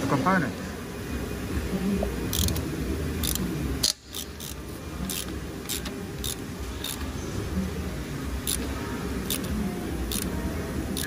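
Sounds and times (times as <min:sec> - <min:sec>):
steady low hum: 0:00.0 - 0:11.0
socket ratchet clicking: 0:02.3 - 0:02.6, 0:03.2 - 0:07.1, 0:08.4 - 0:10.3.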